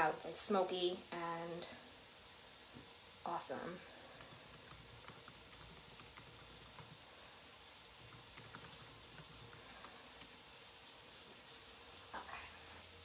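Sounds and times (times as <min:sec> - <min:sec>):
meat frying in a skillet: 0:10.1 - 0:13.0.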